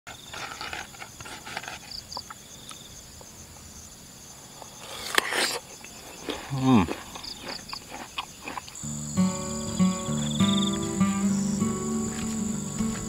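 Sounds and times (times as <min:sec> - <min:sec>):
insects chirping: 0:00.1 - 0:13.0
crisp crunch of biting: 0:06.2 - 0:08.8.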